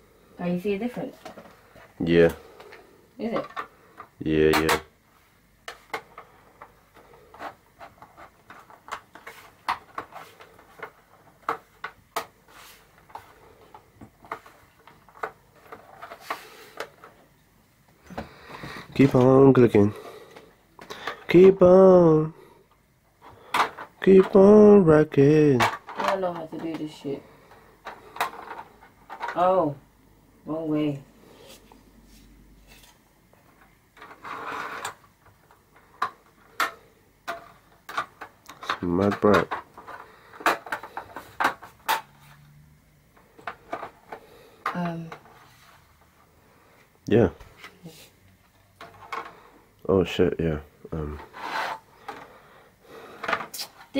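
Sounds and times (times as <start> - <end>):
plastic scraping rustle: 5.7 - 17.2, 32.6 - 42.4, 51.0 - 53.9.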